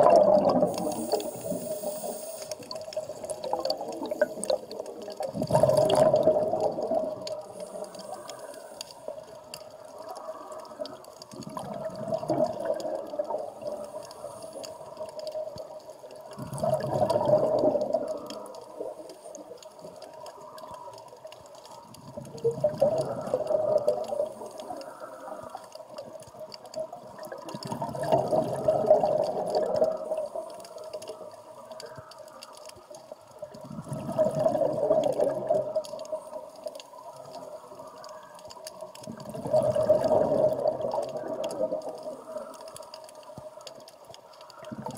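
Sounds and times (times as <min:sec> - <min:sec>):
diver exhaling bubbles: 0:00.0 - 0:08.2, 0:16.4 - 0:18.5, 0:27.2 - 0:30.2, 0:33.6 - 0:35.9, 0:39.1 - 0:42.0.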